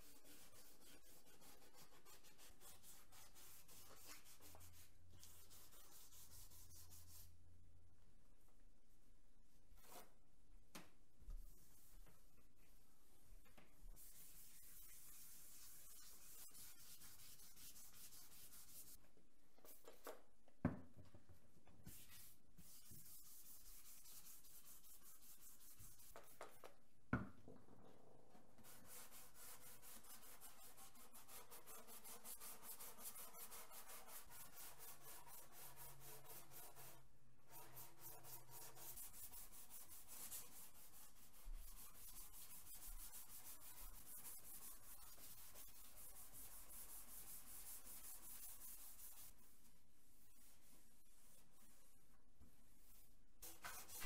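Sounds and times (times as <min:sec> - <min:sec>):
sandpaper rubbing: 0:28.7 - 0:49.4.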